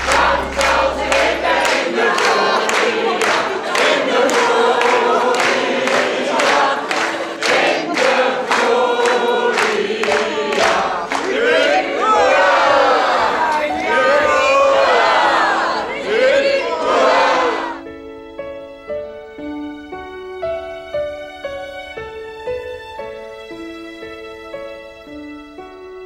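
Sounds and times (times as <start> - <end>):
group of people singing: 0.0 - 17.8
people clapping in time: 0.0 - 17.8.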